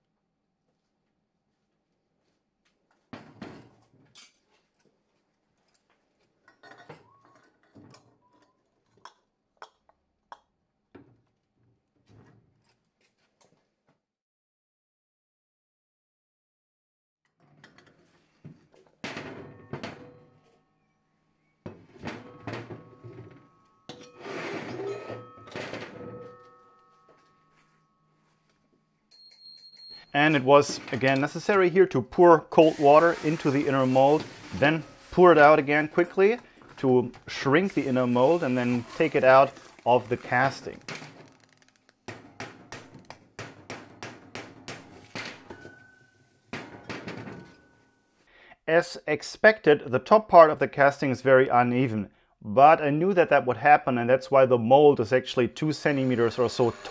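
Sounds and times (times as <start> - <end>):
metal knocks with ringing tone: 21.6 - 30.0.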